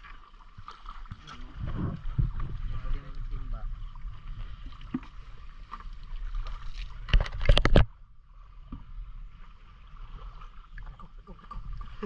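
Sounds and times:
steady low rumble: 1.2 - 6.0.

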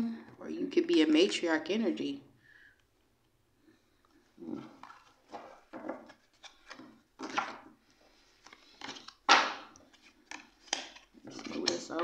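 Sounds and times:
cards rustling and tapping on table: 8.4 - 12.0.

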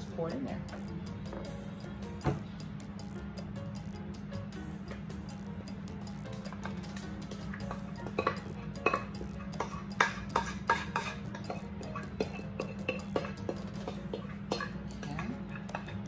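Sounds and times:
steady low hum: 0.0 - 16.0
utensil scraping mixing bowl: 7.5 - 16.0.

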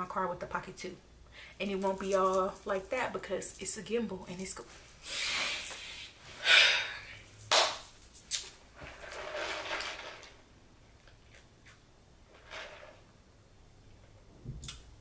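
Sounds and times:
loud breathy sigh: 5.1 - 7.2.

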